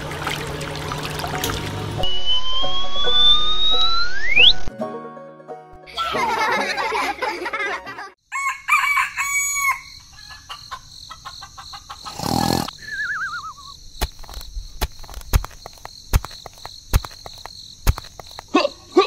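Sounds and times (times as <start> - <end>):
falling warbling whistle: 2.0 - 4.7, 12.8 - 13.7
rooster crowing: 8.2 - 10.8.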